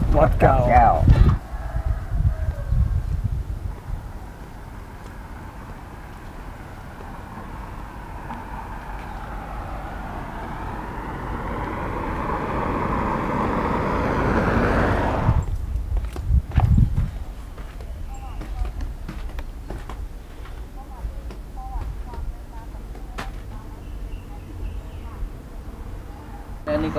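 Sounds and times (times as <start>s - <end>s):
vehicle engine revving: 4.5s - 15.6s
low rumble: 5.4s - 22.9s.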